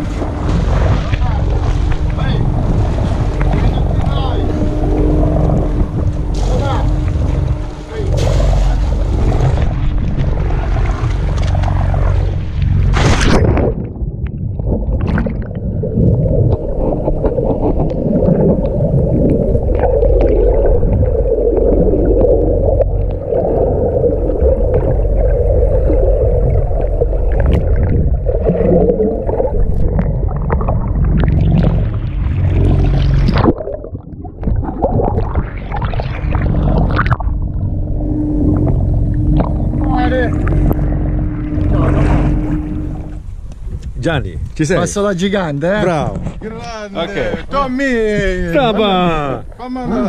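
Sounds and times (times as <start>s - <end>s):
water bubbling and gurgling: 0.0s - 44.0s
water splashing against camera: 0.0s - 44.6s
muffled underwater rumble: 0.0s - 50.0s.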